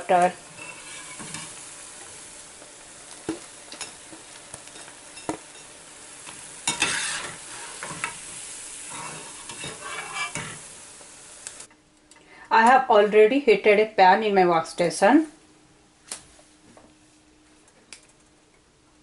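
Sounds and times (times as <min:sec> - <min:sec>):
fritters sizzling in hot oil: 0:00.0 - 0:11.7.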